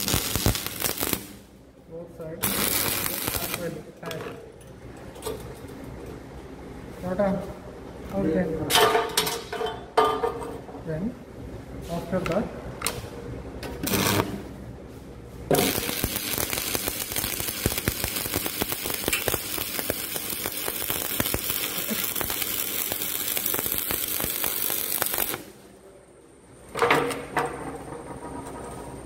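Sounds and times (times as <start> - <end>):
welding arc crackling: 0.0 - 1.6, 2.4 - 3.9, 13.8 - 14.6, 15.5 - 25.6.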